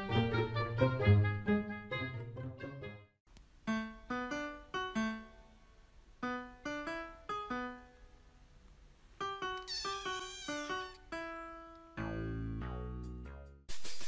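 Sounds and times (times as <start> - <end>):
piano melody: 3.7 - 5.6, 6.2 - 8.1, 9.2 - 13.6.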